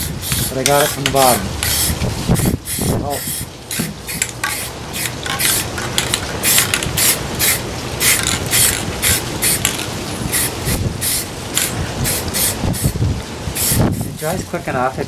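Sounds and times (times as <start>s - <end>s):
spray paint can hissing: 0.0s - 13.0s, 13.6s - 14.2s.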